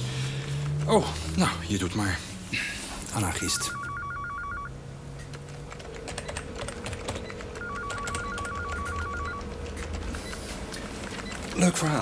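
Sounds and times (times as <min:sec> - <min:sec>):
electronic telephone warbling: 0:03.4 - 0:04.7, 0:07.6 - 0:09.5
keyboard typing: 0:03.5 - 0:12.0.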